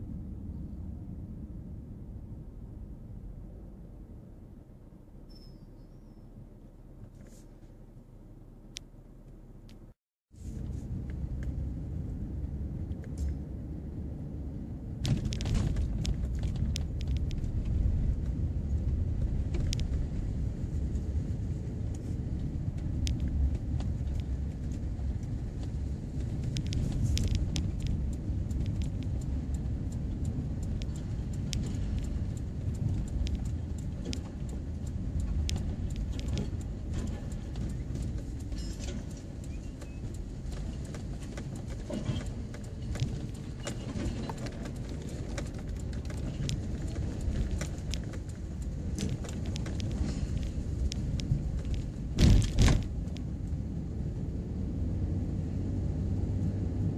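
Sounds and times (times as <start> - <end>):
low road rumble: 0.0 - 56.9
stones clicking under tyres: 15.0 - 53.7.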